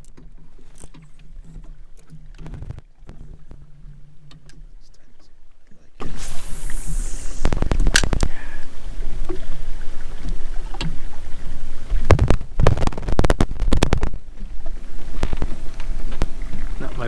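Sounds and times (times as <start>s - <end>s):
sharp knocks on boat: 0.0s - 4.8s, 10.7s - 11.1s, 11.9s - 14.5s
wind rumble on microphone: 2.3s - 3.9s, 6.0s - 17.0s.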